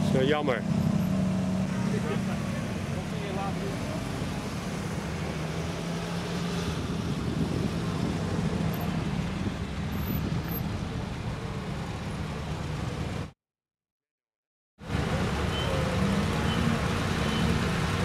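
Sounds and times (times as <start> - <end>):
cars driving past: 0.0 - 13.4.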